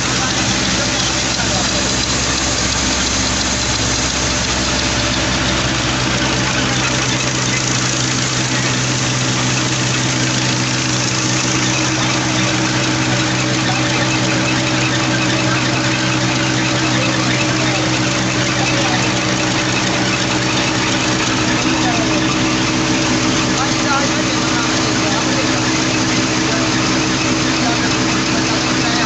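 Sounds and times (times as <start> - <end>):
grinding mill: 0.0 - 29.0
tractor diesel engine running: 0.0 - 29.0.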